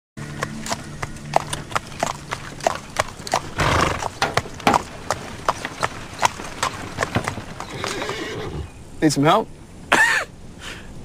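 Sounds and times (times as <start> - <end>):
horse hooves clip-clopping on road: 0.2 - 8.7.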